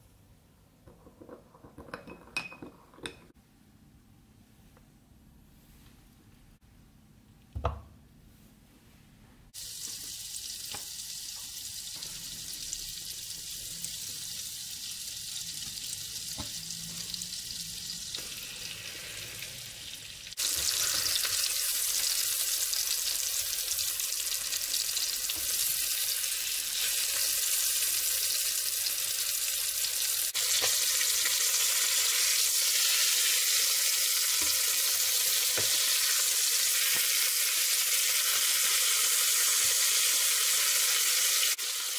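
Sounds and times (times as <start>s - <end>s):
butter and oil sizzling: 9.6s - 41.9s
chicken frying in butter: 9.6s - 41.9s.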